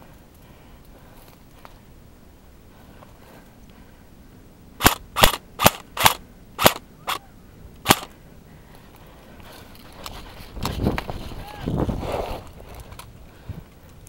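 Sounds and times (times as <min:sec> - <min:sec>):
airsoft gun shots: 0:04.8 - 0:07.2, 0:07.8 - 0:08.1.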